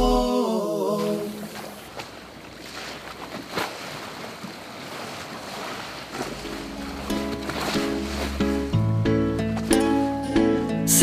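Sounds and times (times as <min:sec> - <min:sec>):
rushing background noise: 0:06.1 - 0:10.7
song: 0:06.4 - 0:11.0.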